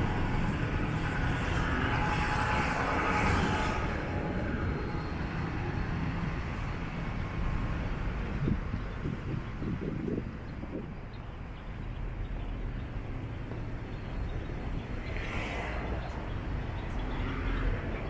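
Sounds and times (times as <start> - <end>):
vehicle passing: 0.0 - 8.5, 13.0 - 18.0
low traffic rumble: 0.0 - 18.0.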